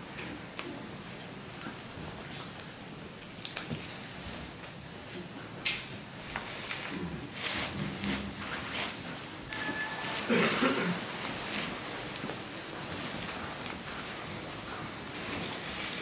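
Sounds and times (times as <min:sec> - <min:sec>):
plastic bag rustling: 0:06.4 - 0:16.0.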